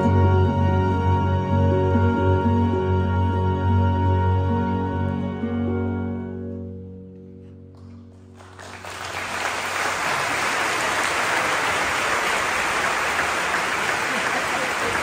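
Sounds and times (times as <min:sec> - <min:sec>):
audience applause: 0:08.1 - 0:15.0.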